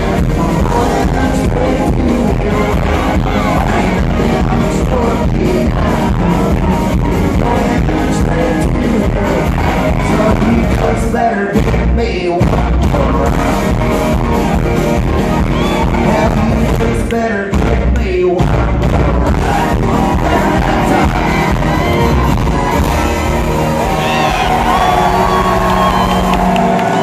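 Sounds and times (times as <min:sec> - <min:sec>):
man singing: 0:00.0 - 0:14.0, 0:15.8 - 0:21.9
live country band: 0:00.0 - 0:27.0.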